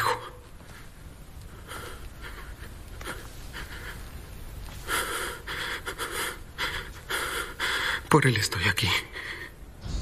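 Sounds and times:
person breathing heavily: 1.5 - 8.1.

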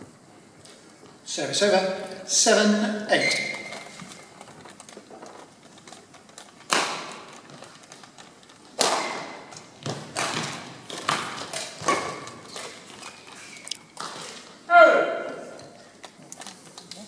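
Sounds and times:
rackets hitting shuttlecock: 6.7 - 7.4, 8.7 - 13.0.

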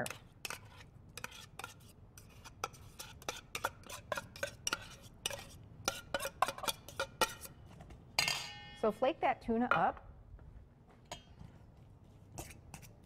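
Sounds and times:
fork scraping in a tin can: 0.0 - 7.5, 12.4 - 13.0.

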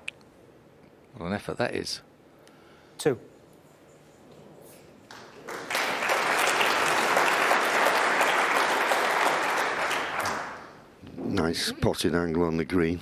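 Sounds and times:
audience applauding: 5.1 - 10.8.

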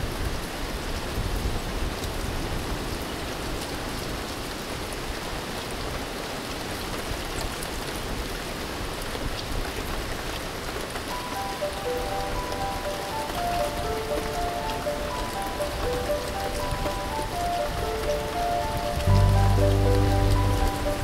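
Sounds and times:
steady rain hiss: 0.0 - 21.0
raindrop ticks: 9.3 - 21.0
held music notes: 11.1 - 21.0.

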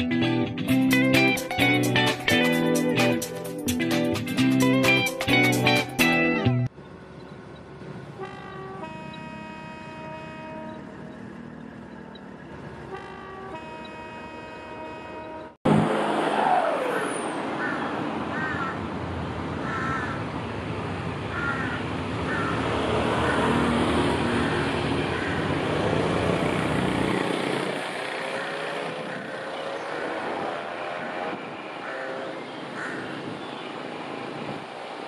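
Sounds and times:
diesel locomotive engine rumbling: 0.0 - 35.0
rising engine tone: 7.9 - 17.6
crows cawing: 17.5 - 18.9, 19.6 - 20.3, 21.3 - 25.7, 28.1 - 31.1, 31.8 - 33.4.

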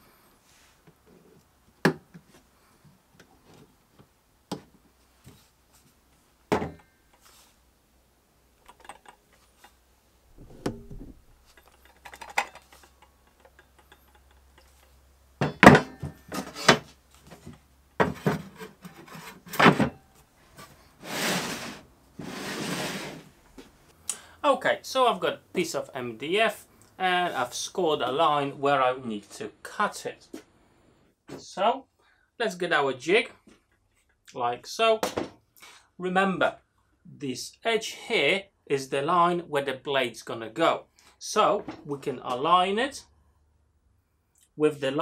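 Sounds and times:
sharp clicks and knocks: 8.6 - 16.8
wooden knocks and rubbing: 10.3 - 14.8, 15.4 - 20.0.

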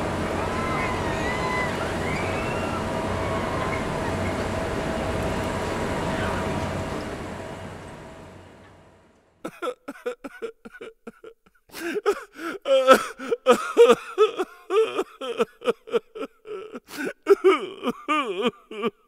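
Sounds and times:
carnival ride noise: 0.0 - 9.6
cartoonish voice sobbing: 9.5 - 19.0.

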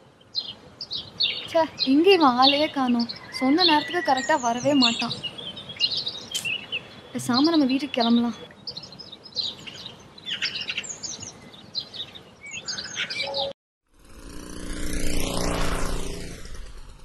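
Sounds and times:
small birds chirping: 0.0 - 13.5
motor scooter passing by: 13.9 - 17.0.

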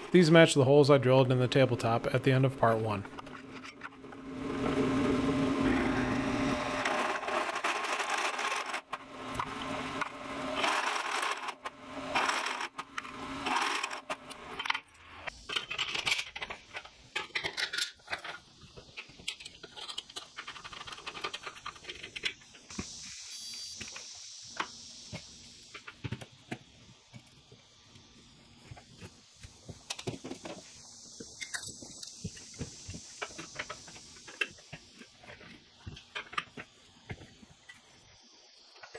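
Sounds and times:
drill motor hum: 3.9 - 14.6.

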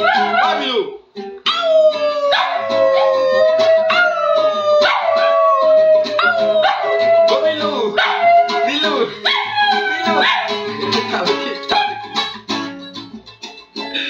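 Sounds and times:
small dog howling: 0.0 - 0.7, 1.5 - 10.7, 11.7 - 12.2
man singing: 0.0 - 0.8, 1.5 - 12.5
acoustic guitar strumming: 0.0 - 14.0.

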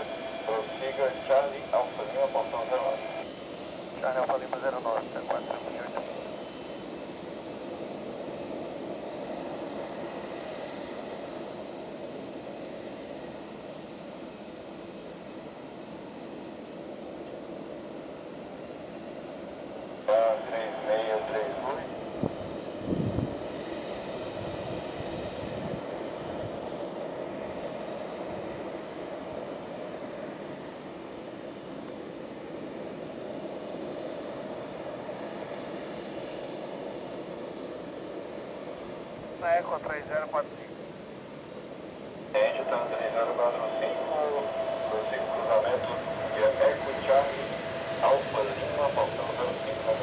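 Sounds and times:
jet engines running: 0.0 - 50.0.

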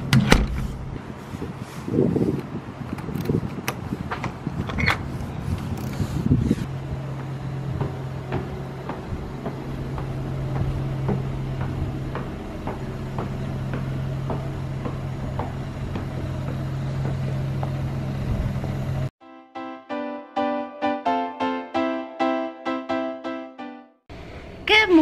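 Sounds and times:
low hum: 5.8 - 19.1
footsteps on wooden stairs: 6.6 - 18.2
music: 19.2 - 24.0.

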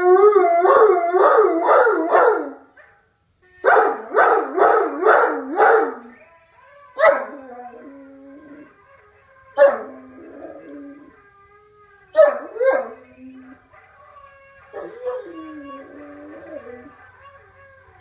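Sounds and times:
dog howling and woofing: 0.0 - 2.6, 3.6 - 6.2, 6.8 - 8.8, 9.4 - 11.2, 12.1 - 17.0.

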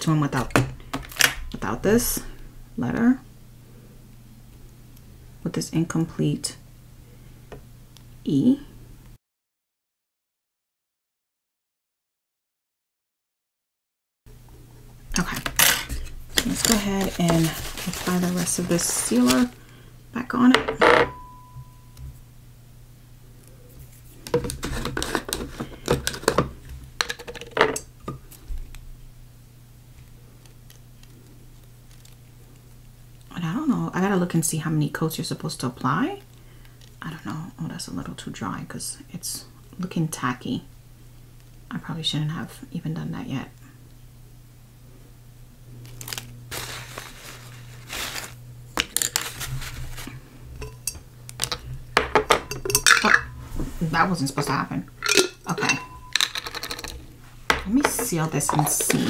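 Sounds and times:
steady low hum: 0.0 - 9.2, 14.3 - 59.0
rubbing and scraping on tabletop: 15.7 - 19.6, 23.8 - 26.3, 49.0 - 50.1
glassware clinking: 20.7 - 21.8, 50.6 - 53.4, 55.0 - 59.0
short ringing clink: 21.1 - 22.0, 55.7 - 56.2
small hard objects clicking: 55.0 - 57.0.

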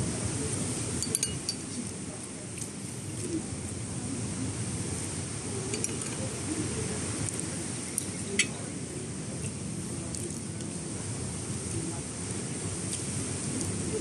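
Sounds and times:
low background murmur: 0.0 - 14.0
cutlery and dishes clinking: 1.0 - 1.6, 5.7 - 6.2.

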